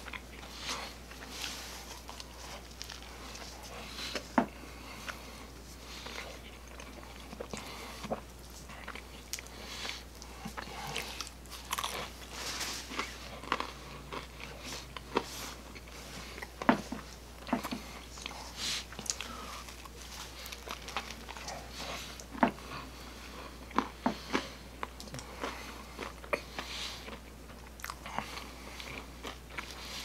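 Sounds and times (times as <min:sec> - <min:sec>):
chewing: 0:00.0 - 0:30.0
low steady hum: 0:00.0 - 0:30.0
crunchy pizza crust bites: 0:06.8 - 0:18.0.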